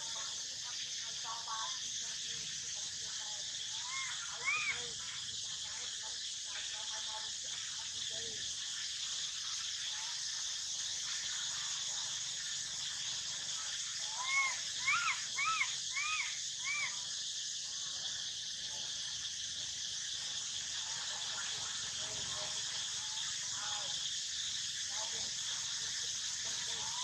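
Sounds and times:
high insect drone: 0.0 - 27.0
baby monkey crying calls: 3.7 - 4.9, 14.0 - 17.0.

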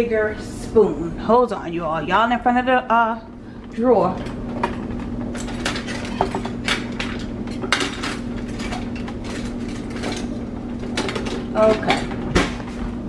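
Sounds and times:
cutlery clinking in drawer: 5.4 - 10.4.

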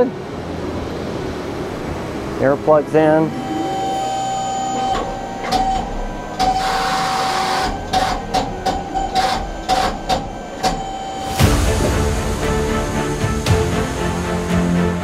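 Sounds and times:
hydraulic whine: 0.0 - 14.9
sharp knocks and hisses: 11.3 - 15.0.

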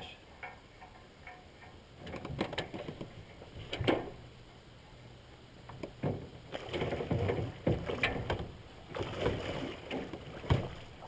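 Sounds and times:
sharp knocks on boat: 2.0 - 4.2, 5.7 - 11.0
fish splashing and thrashing: 5.7 - 11.0.

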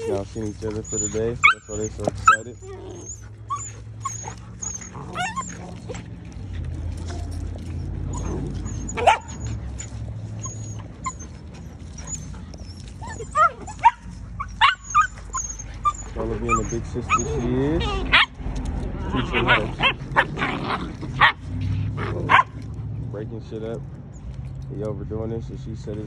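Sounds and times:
dog yelping: 0.0 - 6.2, 7.8 - 18.4, 19.0 - 22.6
puppies yipping and whining: 0.0 - 23.1.

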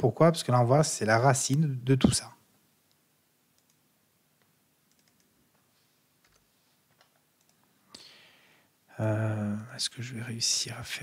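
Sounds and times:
keyboard keystrokes and clicks: 4.9 - 5.3.

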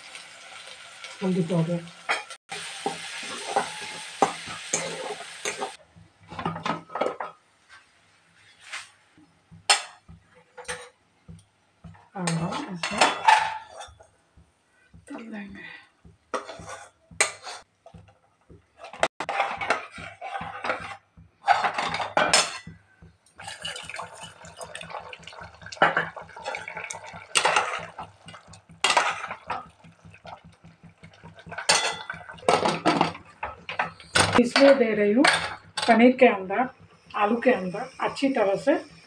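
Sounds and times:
metal utensils clinking on pot: 2.0 - 7.4, 11.9 - 14.1, 18.8 - 39.0.

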